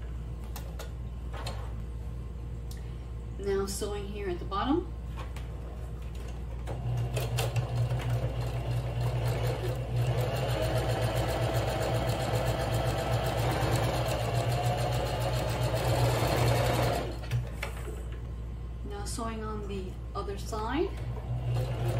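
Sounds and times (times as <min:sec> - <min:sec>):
sewing machine stitching: 0:06.7 - 0:17.3, 0:21.0 - 0:21.9.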